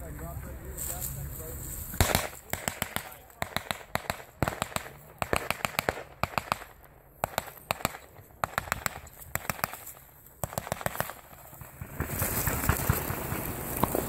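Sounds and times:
blank gunfire pops: 2.0s - 11.1s
rushing rustling noise: 11.0s - 14.0s.

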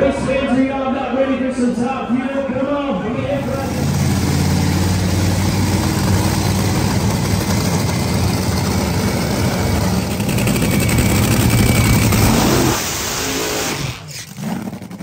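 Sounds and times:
dragster engine idling loudly: 3.3s - 15.0s.

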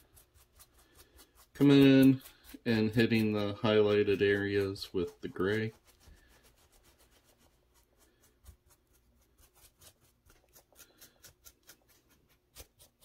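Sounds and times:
paintbrush scratching on clay: 0.0s - 13.0s.

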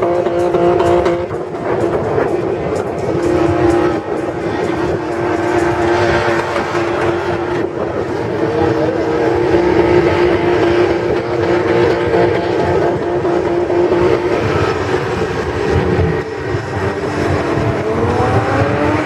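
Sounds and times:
engine at high revs: 0.0s - 19.0s.

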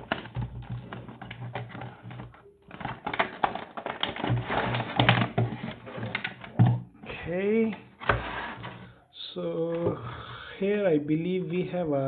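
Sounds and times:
cardboard crackling and scraping: 0.0s - 6.6s, 8.0s - 8.9s.

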